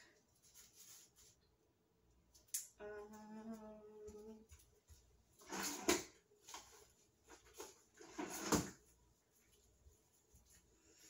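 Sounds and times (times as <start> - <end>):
rustling: 0.0 - 1.7.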